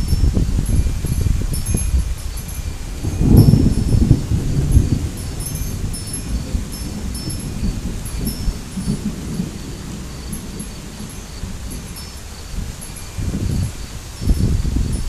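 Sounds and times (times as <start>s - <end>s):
low wind rumble: 0.0s - 15.0s
wind chimes tinkling: 0.0s - 15.0s.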